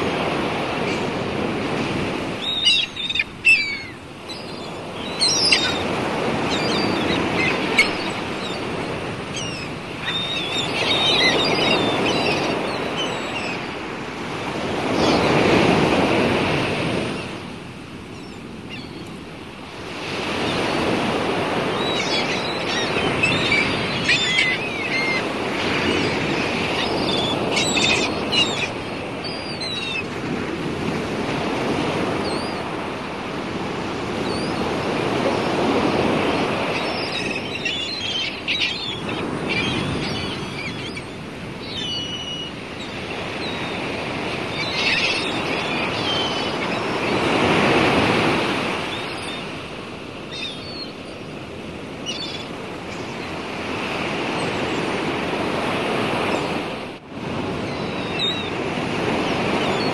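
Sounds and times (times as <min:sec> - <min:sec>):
sea waves washing: 0:00.0 - 0:59.9
short high bird calls: 0:02.4 - 0:05.8, 0:21.8 - 0:30.0.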